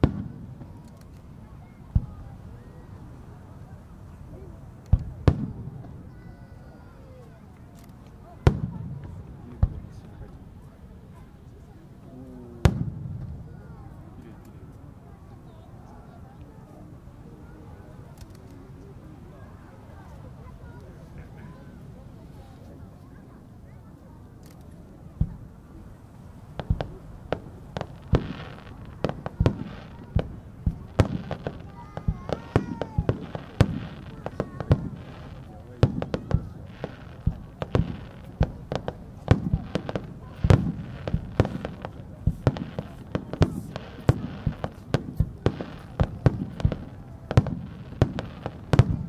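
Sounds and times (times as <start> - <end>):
fireworks bangs: 0.0 - 0.9, 4.9 - 6.5, 12.6 - 13.7, 26.5 - 49.0
faint fireworks hiss: 0.0 - 49.0.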